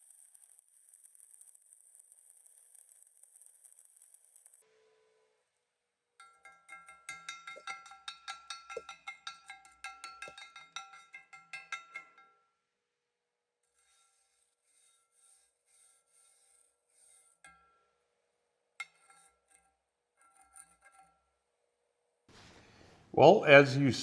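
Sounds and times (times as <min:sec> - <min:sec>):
wire brush scrubbing steel: 0:13.7 - 0:17.8.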